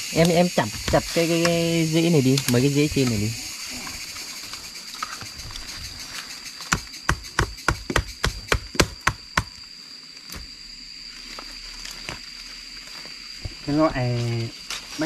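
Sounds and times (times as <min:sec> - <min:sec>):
high insect drone: 0:00.0 - 0:15.0
blade chopping tree roots: 0:06.6 - 0:09.6.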